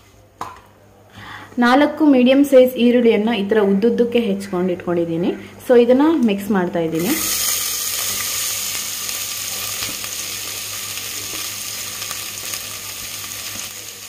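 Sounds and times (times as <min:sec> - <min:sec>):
onions sizzling in hot fat: 0:07.0 - 0:14.0.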